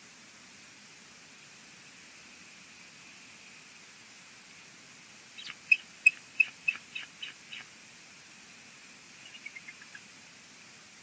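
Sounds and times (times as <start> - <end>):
eagle calling: 5.4 - 7.7, 9.2 - 10.1.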